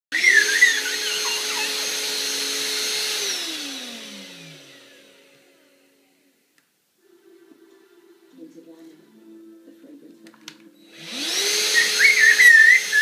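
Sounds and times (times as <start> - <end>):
handheld vacuum cleaner motor whine: 0.1 - 5.6, 10.8 - 13.0
child squealing: 0.2 - 2.0.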